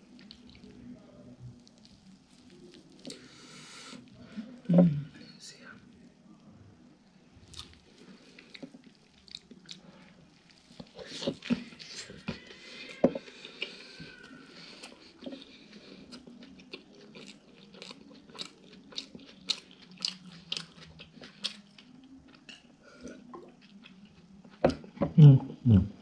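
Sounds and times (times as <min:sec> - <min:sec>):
chewing with mouth smacks: 0:00.1 - 0:00.8, 0:07.5 - 0:12.5, 0:13.2 - 0:25.0.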